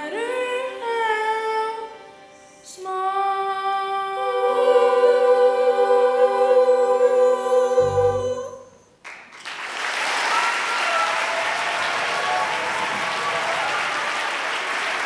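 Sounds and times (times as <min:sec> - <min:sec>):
children's chorus singing: 0:03.0 - 0:08.6
audience applause: 0:09.0 - 0:15.0.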